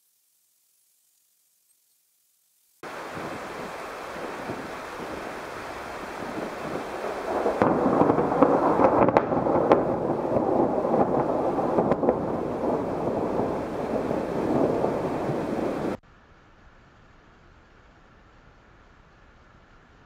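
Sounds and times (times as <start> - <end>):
steady hiss of rain: 0.0 - 20.0
thunder rumbling and cracking: 2.8 - 16.0.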